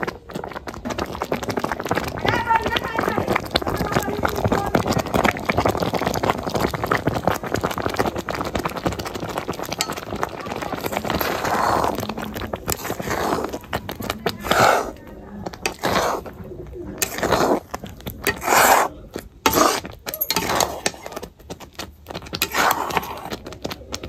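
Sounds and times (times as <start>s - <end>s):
thick liquid bubbling and plopping: 0.0s - 24.0s
ladle scraping pan: 9.4s - 21.3s, 22.4s - 23.4s.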